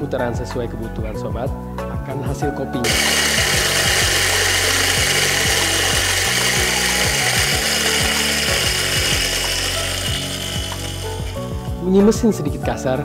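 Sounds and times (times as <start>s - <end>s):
electric coffee grinder grinding: 2.8s - 11.9s.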